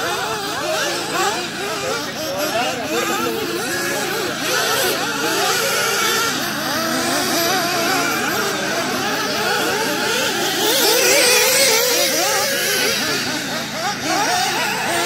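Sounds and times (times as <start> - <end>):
rc car motors revving: 0.0 - 15.0.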